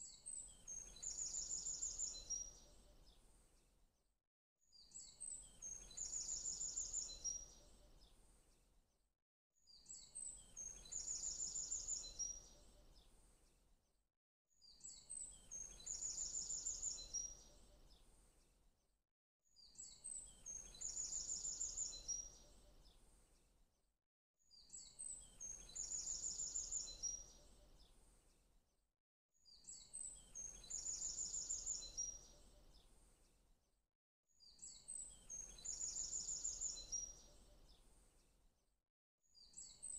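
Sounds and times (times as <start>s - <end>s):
songbird chirps and trill: 0.1s - 3.3s, 4.8s - 8.2s, 19.6s - 23.1s, 24.6s - 28.0s, 29.5s - 33.0s, 34.4s - 37.9s, 39.4s - 39.9s.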